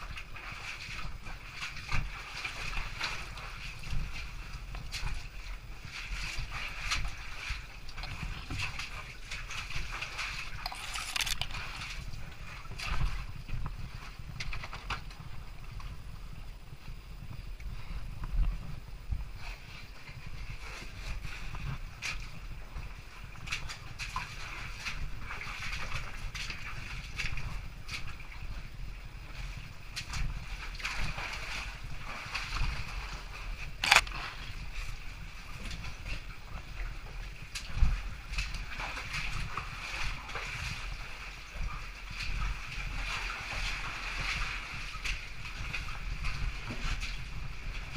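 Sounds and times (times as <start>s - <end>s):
wind rumble on microphone: 0.0s - 47.9s
camera housing scraping on rock: 10.6s - 11.7s, 33.8s - 34.2s.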